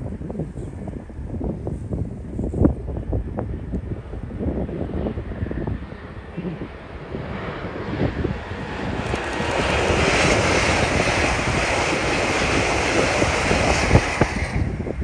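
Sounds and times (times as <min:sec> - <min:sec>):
wind buffeting microphone: 0:00.0 - 0:15.0
train passing at speed: 0:07.6 - 0:15.0.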